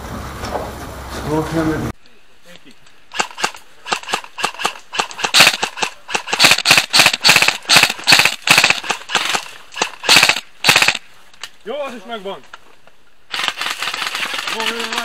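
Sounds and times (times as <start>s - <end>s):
airsoft guns firing single shots: 3.1s - 11.0s.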